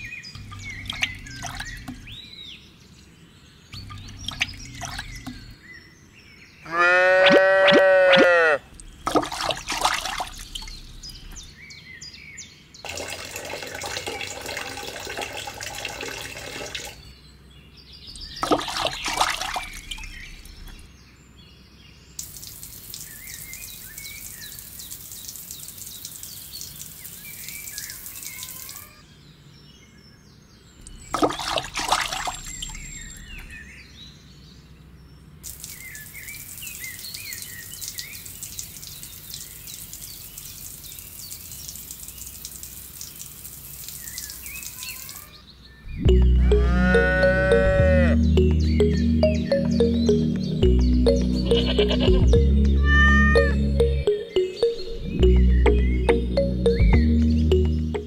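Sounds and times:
water pouring and splashing: 0.0 - 2.2, 3.7 - 5.6, 7.7 - 11.7, 12.8 - 17.1, 18.2 - 20.8, 22.2 - 29.0, 30.8 - 33.6, 35.4 - 45.4
faint bird chirps: 0.0 - 6.7, 30.6 - 34.7, 43.9 - 58.0
water trickling onto sand: 8.8 - 11.1, 12.8 - 17.0, 18.2 - 20.1, 22.2 - 28.8, 35.4 - 45.4.

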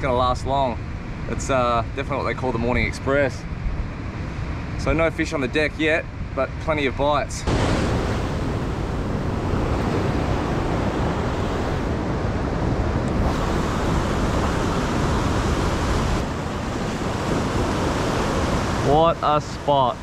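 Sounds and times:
wind buffeting microphone: 2.0 - 20.0
ocean surf breaking on rocks: 7.4 - 20.0.

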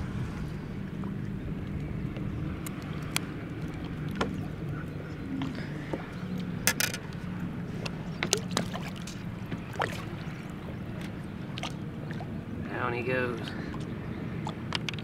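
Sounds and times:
low rumble of water and wind: 0.0 - 15.0
water sloshing: 0.0 - 15.0
clicks and knocks on boat: 1.6 - 10.4, 13.5 - 15.0.

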